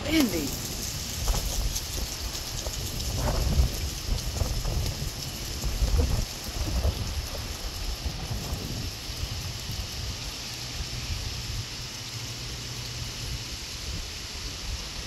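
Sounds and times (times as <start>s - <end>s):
wind buffeting microphone: 0.0s - 12.0s
rain hiss: 0.0s - 15.0s.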